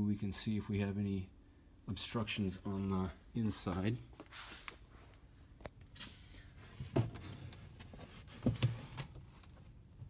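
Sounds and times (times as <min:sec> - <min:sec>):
soft knocks and rustles: 0:04.1 - 0:09.8.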